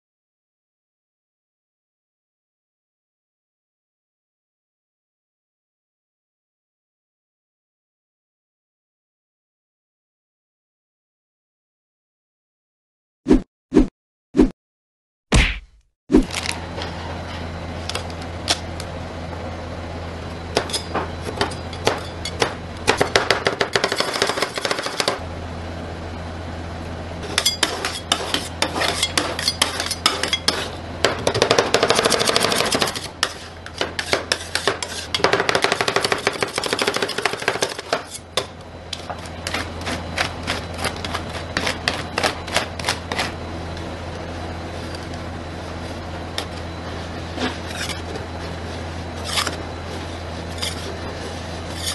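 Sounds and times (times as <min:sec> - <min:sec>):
steady low hum: 0:15.6 - 0:51.9.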